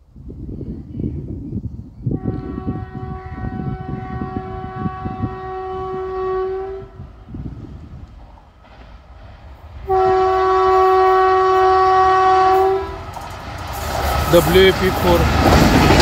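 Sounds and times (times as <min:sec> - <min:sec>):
train horn blast: 0:02.1 - 0:07.2, 0:09.8 - 0:13.1.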